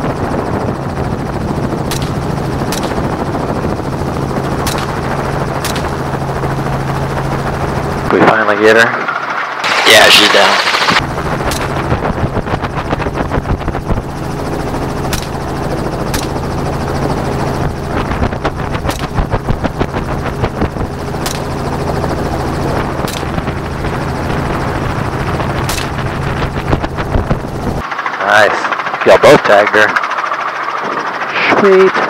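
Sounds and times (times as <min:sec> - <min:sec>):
helicopter rotor chop: 0:00.0 - 0:32.0
gunshots: 0:01.9 - 0:03.1, 0:04.6 - 0:06.0, 0:15.1 - 0:15.4, 0:25.6 - 0:26.1.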